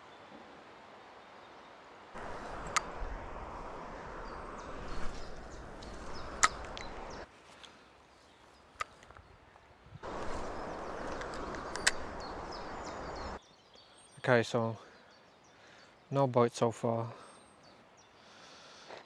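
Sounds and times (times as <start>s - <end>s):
river water rushing: 2.0s - 7.3s, 10.0s - 13.4s
sharp clicks: 2.6s - 3.0s, 5.8s - 7.0s, 11.1s - 12.3s.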